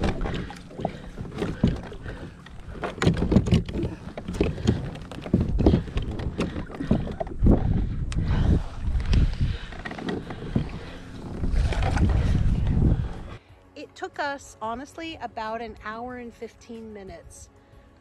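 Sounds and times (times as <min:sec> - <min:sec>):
kayak hull knocking and splashing: 0:00.0 - 0:13.1
wind buffeting microphone: 0:00.0 - 0:13.4.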